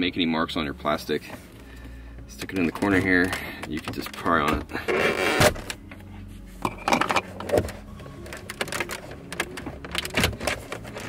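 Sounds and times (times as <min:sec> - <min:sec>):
plastic creaking and scraping: 0:02.4 - 0:11.0
plastic clips clicking: 0:07.1 - 0:11.0.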